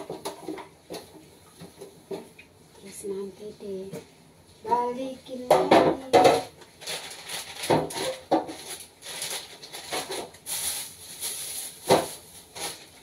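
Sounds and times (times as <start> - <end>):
bags rustling: 6.8 - 13.0.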